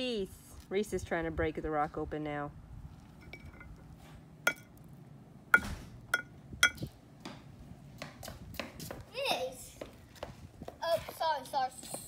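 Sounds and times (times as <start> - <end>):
hammer clinking on rock: 4.5 - 4.8, 5.6 - 6.9.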